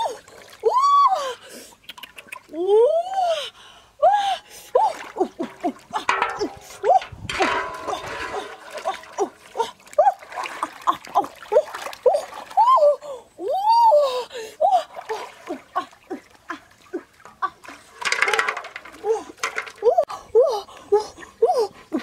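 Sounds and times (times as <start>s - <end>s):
water splashing: 4.7s - 13.0s, 14.6s - 19.9s.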